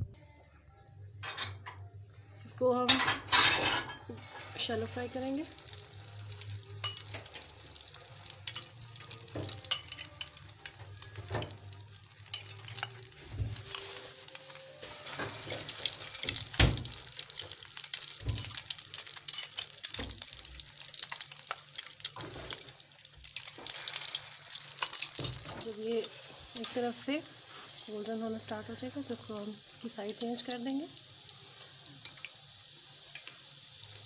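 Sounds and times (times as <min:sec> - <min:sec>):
food sizzling in hot oil: 0:02.5 - 0:34.0.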